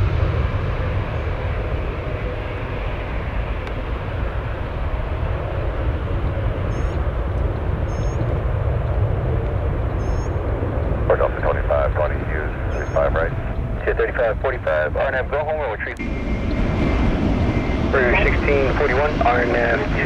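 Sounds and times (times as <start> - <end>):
jet engine roar: 0.0 - 20.0.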